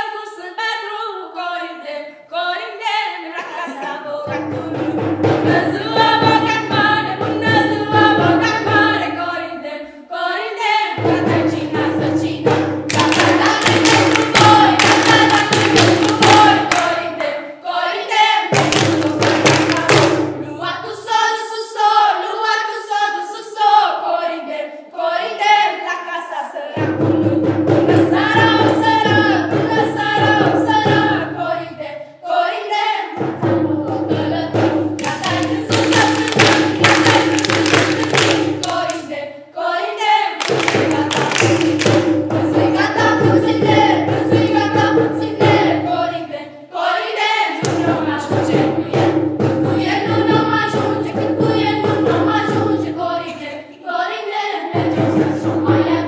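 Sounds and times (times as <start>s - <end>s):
children's choir singing a carol: 0.0s - 56.0s
rhythmic hand-clapping: 11.6s - 17.4s, 18.5s - 20.3s, 34.9s - 39.2s, 40.4s - 45.5s, 47.6s - 48.4s.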